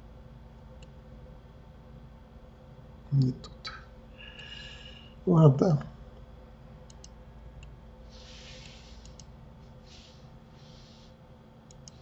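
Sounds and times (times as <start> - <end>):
steady low hum: 0.0 - 12.0
computer mouse clicking: 6.8 - 7.7, 8.5 - 9.3, 11.6 - 12.0
soft hissing swishes: 8.0 - 11.2.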